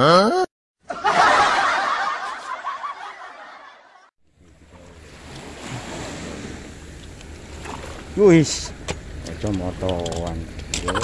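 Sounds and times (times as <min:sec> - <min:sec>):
wind: 0:00.8 - 0:11.0
people laughing: 0:00.9 - 0:04.1
boat engine humming: 0:04.2 - 0:11.0
sea noise: 0:04.3 - 0:09.5.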